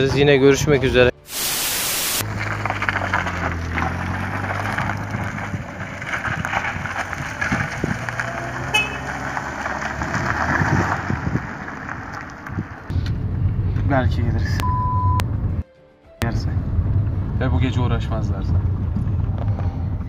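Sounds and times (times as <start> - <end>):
loud hiss: 1.2 - 2.2
rough crackling noise: 1.2 - 13.8
car engine running: 2.2 - 10.3, 16.2 - 20.0.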